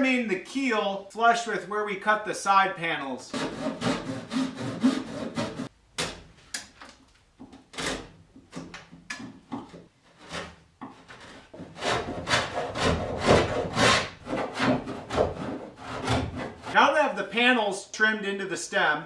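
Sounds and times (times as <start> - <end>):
hand tool rasping wood: 3.3 - 5.7, 9.5 - 16.8.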